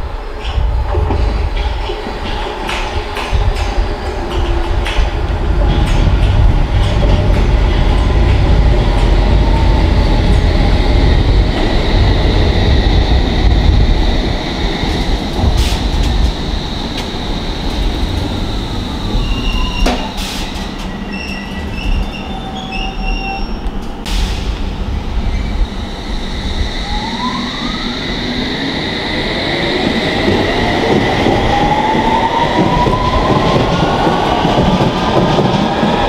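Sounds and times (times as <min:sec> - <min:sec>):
train rumbling: 0:00.0 - 0:36.0
wheels and brakes squealing: 0:19.1 - 0:23.9.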